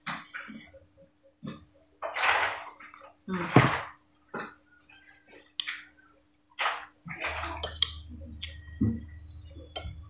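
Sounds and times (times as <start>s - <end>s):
low steady hum: 2.6s - 10.0s.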